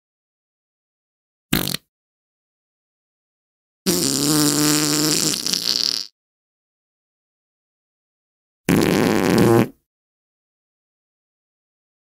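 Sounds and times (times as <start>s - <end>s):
fart sound effects: 1.5s - 1.9s, 3.9s - 6.1s, 8.7s - 9.9s.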